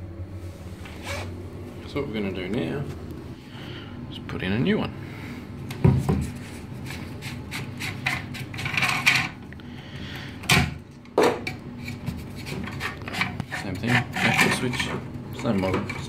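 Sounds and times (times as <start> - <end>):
low steady hum: 0.0 - 16.0
rubbing and scraping against pump: 6.2 - 9.4, 11.8 - 16.0.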